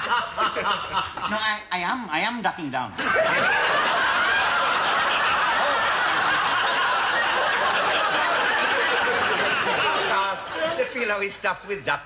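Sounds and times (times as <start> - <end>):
studio audience laughing: 0.0 - 1.4, 3.0 - 11.0.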